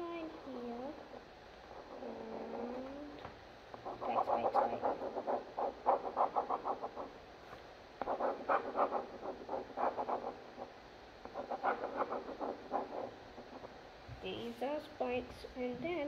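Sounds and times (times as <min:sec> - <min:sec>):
pen scratching on paper: 0:03.8 - 0:07.1, 0:08.0 - 0:13.8.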